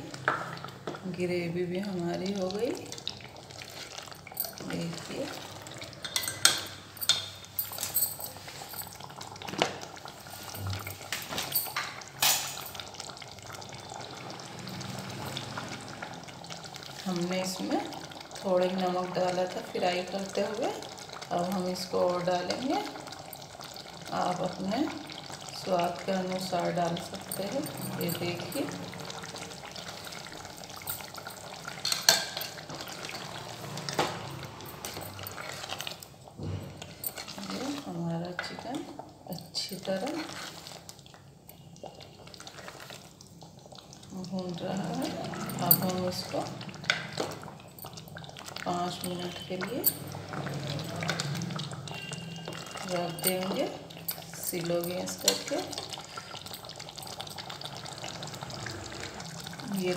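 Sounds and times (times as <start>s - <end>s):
curry frying: 0.0s - 59.9s
gravy cooking: 0.0s - 59.9s
spoon stirring curry in a pot: 19.1s - 59.9s.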